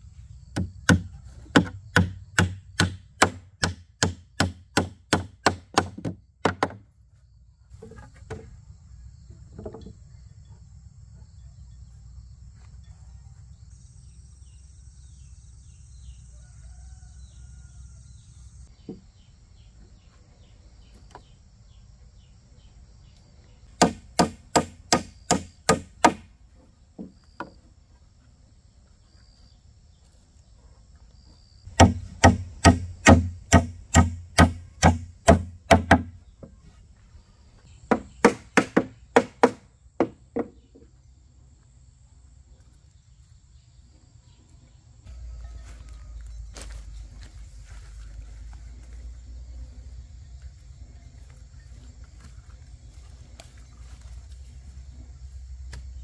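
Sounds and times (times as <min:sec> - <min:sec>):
crickets chirping: 0:00.0 - 0:56.0
sharp blows of a hand tool: 0:00.5 - 0:06.8, 0:23.8 - 0:26.3, 0:31.7 - 0:36.2, 0:37.9 - 0:40.2.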